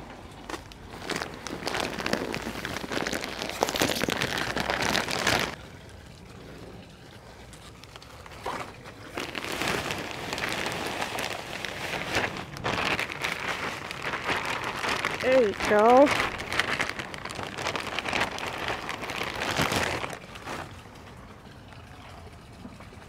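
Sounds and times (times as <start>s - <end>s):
potting mix pouring: 0.2s - 21.7s
plastic bag crinkling: 0.3s - 5.6s, 7.8s - 20.8s.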